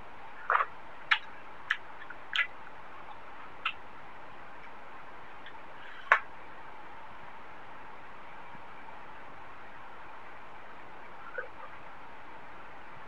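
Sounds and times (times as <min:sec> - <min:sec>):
steady hiss: 0:00.0 - 0:13.0
sharp eating clicks: 0:00.4 - 0:03.8.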